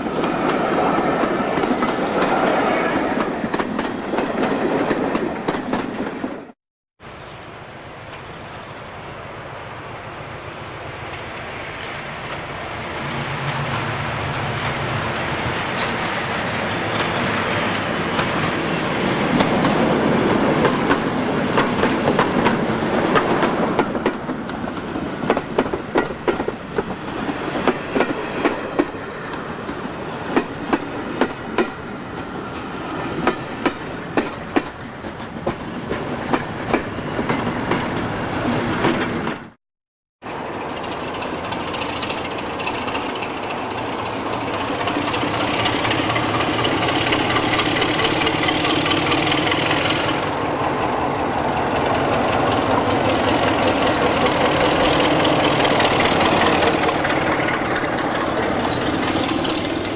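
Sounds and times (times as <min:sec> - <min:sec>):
locomotives passing at speed: 0:00.0 - 0:06.6, 0:07.5 - 0:39.6, 0:40.3 - 0:59.9
diesel locomotive engine running: 0:40.4 - 0:59.9
wheels clattering over rail joints: 0:51.0 - 0:59.9.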